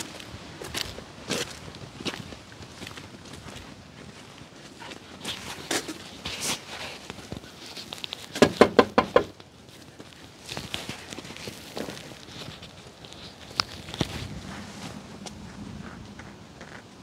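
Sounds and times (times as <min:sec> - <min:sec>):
footsteps on dirt: 0:00.0 - 0:17.0
knocking on wooden door: 0:08.4 - 0:09.3.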